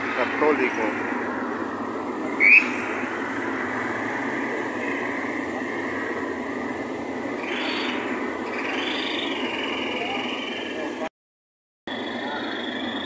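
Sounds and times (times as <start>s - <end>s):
excavator engine running: 0.0s - 11.1s
high rising chirp: 2.4s - 2.9s, 7.4s - 10.8s.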